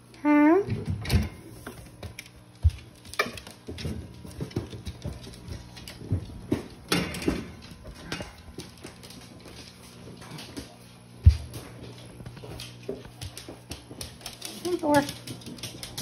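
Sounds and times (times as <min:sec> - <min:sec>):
dog footsteps and claw taps: 0:00.7 - 0:16.0
knocks and thud on floor: 0:02.6 - 0:08.4.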